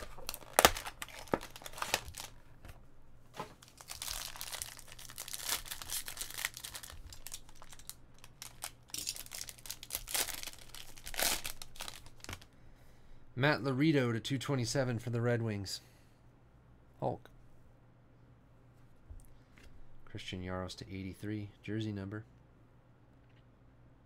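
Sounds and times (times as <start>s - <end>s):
foil wrapper tearing and crinkling: 0.0s - 2.4s, 3.6s - 12.4s.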